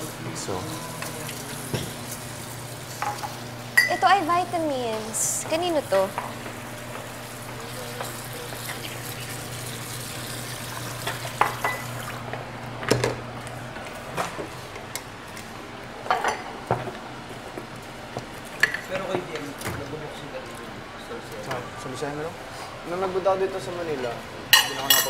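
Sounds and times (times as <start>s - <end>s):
dishes and utensils clinking: 11.0s - 11.9s, 24.5s - 25.0s.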